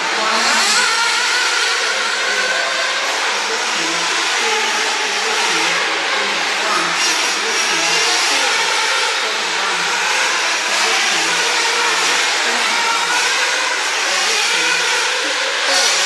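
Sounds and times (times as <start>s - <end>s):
radio-controlled cars motors whining: 0.0s - 16.0s.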